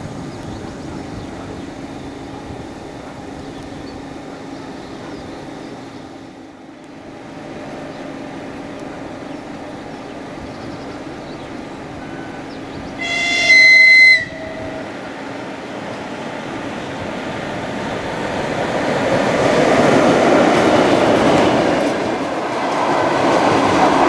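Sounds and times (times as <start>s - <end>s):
train rumbling: 0.0s - 24.0s
shrill train horn blast: 11.9s - 15.6s.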